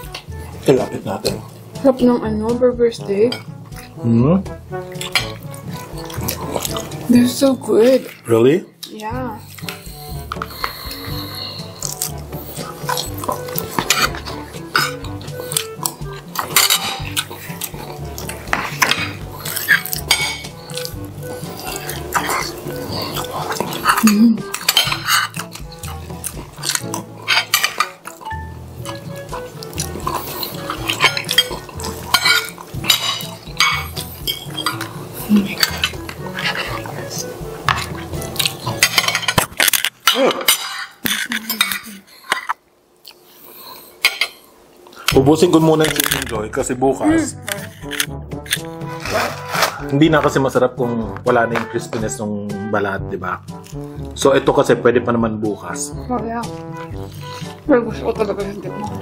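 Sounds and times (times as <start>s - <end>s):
cutlery clinking on plates: 12.8s - 21.5s, 22.1s - 26.0s, 26.6s - 29.0s, 29.7s - 34.9s, 35.5s - 36.8s, 37.6s - 42.6s, 44.0s - 44.4s.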